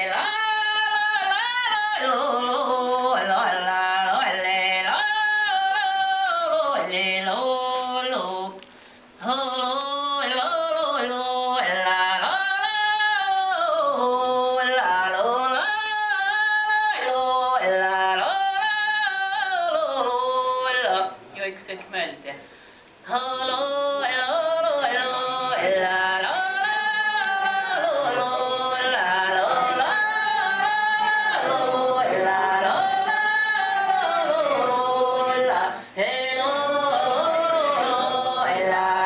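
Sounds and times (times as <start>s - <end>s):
person singing long notes: 23.0s - 39.0s.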